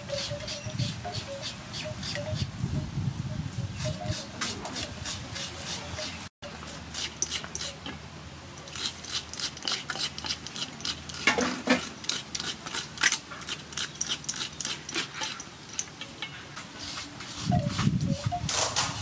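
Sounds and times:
coconut scraper rasping: 3.8s - 7.8s, 8.7s - 15.4s.

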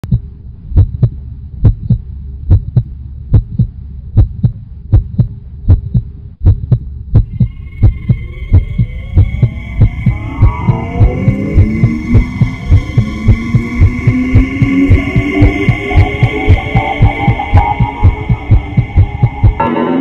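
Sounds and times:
heartbeat-like double thumps: 0.0s - 19.7s
steady low hum: 0.0s - 20.0s
high synth tones: 7.2s - 20.0s
rising synth tones: 7.2s - 20.0s.

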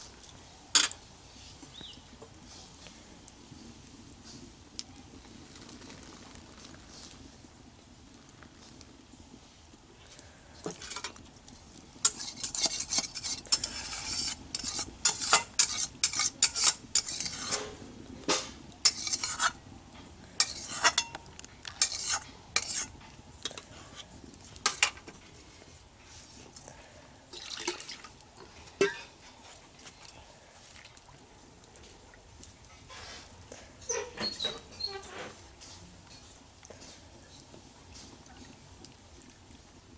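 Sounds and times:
metal utensil scraping a wok: 10.7s - 11.2s, 12.0s - 19.6s, 20.4s - 24.0s, 24.6s - 25.1s.

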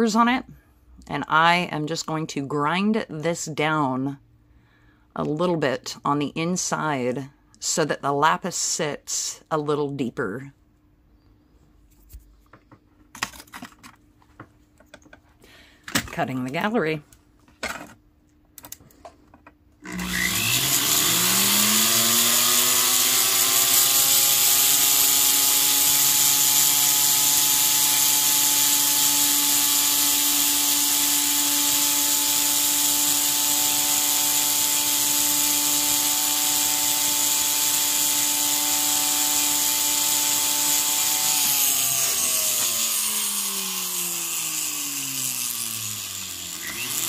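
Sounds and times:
rotary tool whining: 19.8s - 47.0s.

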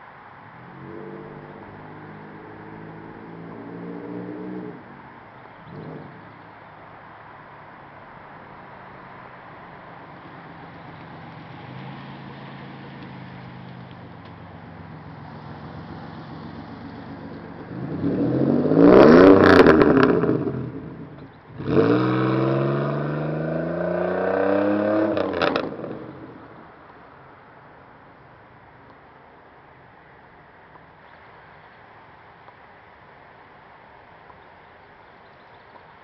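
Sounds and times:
car accelerating hard past: 21.6s - 26.4s.

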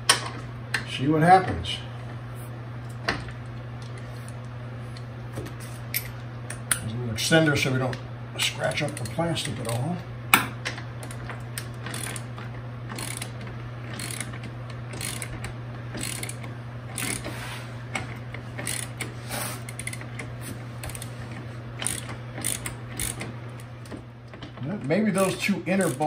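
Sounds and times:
socket ratchet clicking: 12.9s - 13.3s, 13.9s - 15.3s, 21.8s - 23.3s.

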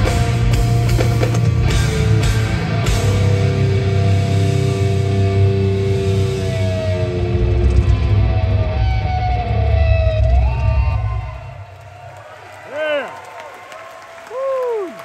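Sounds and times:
metal band playing live: 0.0s - 11.6s
electric guitar note sliding down: 2.0s - 11.6s.

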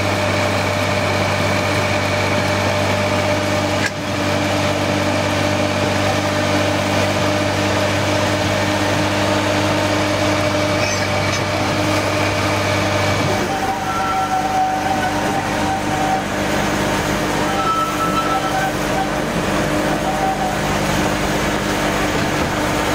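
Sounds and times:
diesel locomotive engine running: 0.0s - 22.9s.

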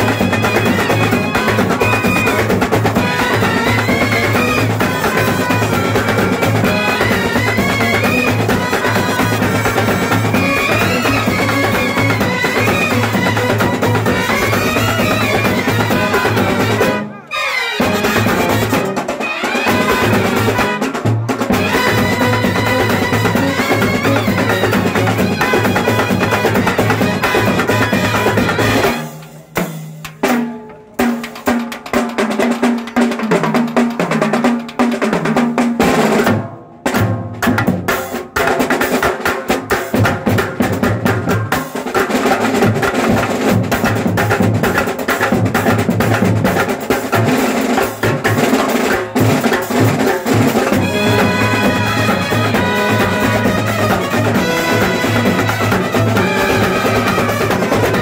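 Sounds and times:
trumpets and clarinets melody: 0.0s - 29.3s, 50.2s - 58.0s
snare drums rolling: 0.0s - 58.0s.

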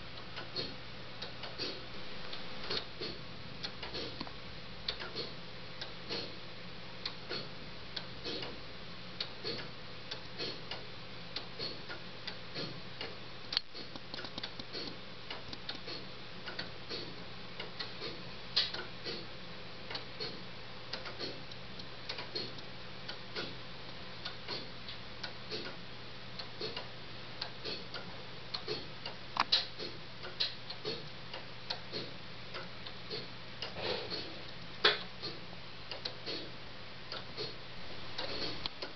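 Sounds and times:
pendulum clock ticking: 0.0s - 6.4s, 7.0s - 38.9s.

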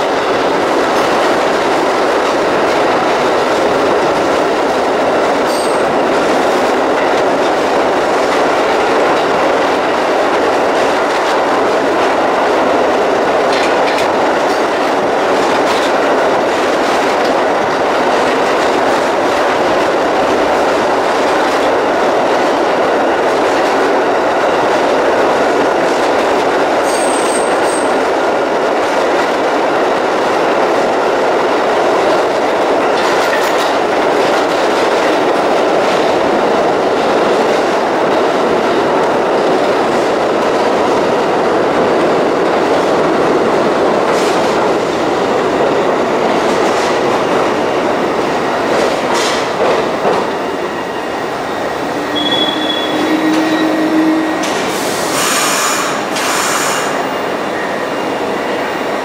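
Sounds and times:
subway train wheels rumbling: 0.0s - 59.0s
high wheel squeal: 52.0s - 56.9s.

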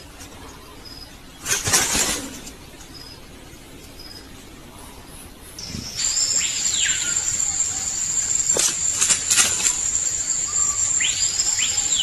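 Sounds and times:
high-pitched drone: 6.0s - 12.0s.

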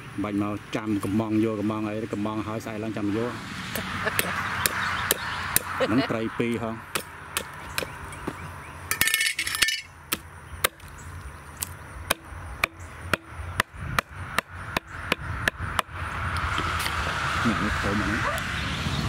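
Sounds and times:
hatchet chopping on wooden board: 3.7s - 5.8s, 6.9s - 8.4s, 10.1s - 10.9s, 11.6s - 16.7s.

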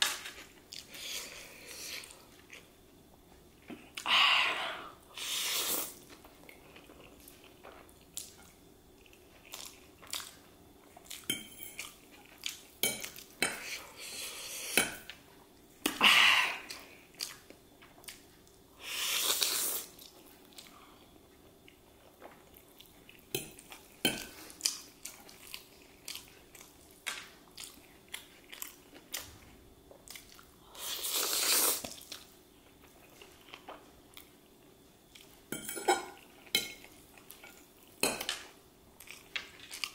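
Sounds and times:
chewing: 6.0s - 13.7s, 21.6s - 30.6s.

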